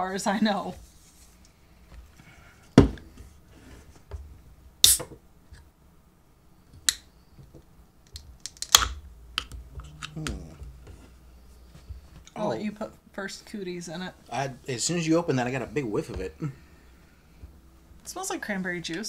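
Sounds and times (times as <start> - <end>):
soda can cracking open: 8.0 - 10.3.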